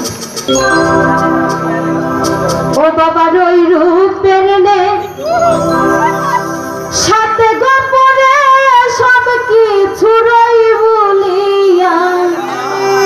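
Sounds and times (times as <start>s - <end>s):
woman singing over loudspeaker: 2.8s - 5.1s, 7.0s - 13.0s.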